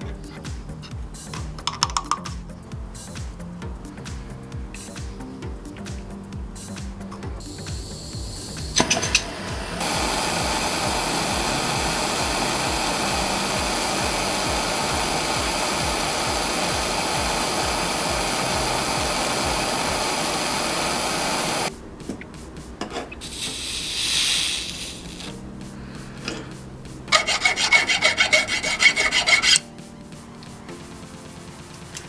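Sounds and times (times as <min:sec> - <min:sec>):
propane torch hissing: 0:07.4 - 0:21.8, 0:22.6 - 0:29.6.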